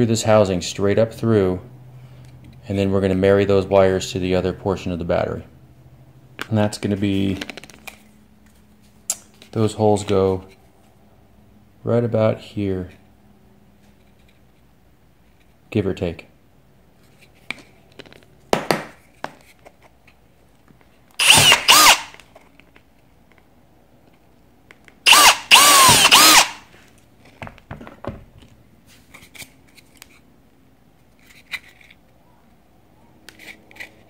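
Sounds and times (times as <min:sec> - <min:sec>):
cordless drill motor whining: 0:21.2 - 0:22.2, 0:25.1 - 0:26.7.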